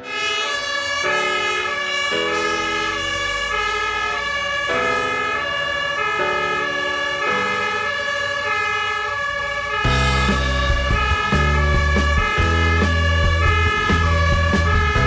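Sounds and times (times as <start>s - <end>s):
two-tone fire engine sirens: 0.0s - 15.0s
low rumble: 9.9s - 15.0s.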